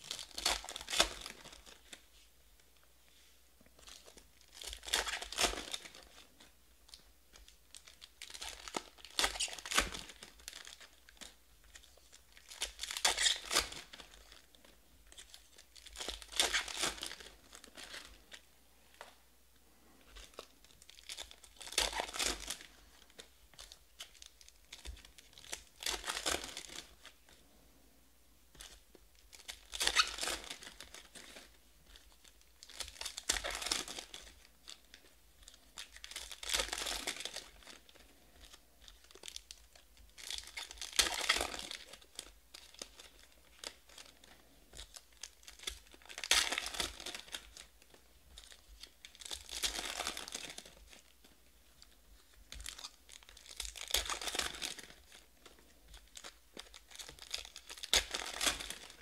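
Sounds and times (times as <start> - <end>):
foil packs tearing and rustling: 48.4 - 51.1, 52.6 - 55.2, 56.0 - 59.0.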